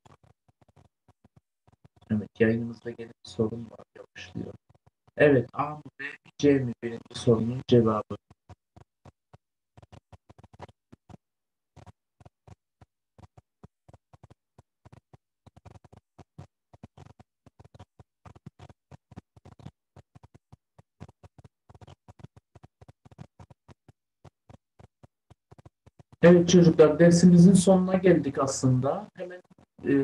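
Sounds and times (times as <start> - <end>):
faint crackling clicks: 0.0 - 2.1, 8.2 - 12.6, 13.2 - 26.2.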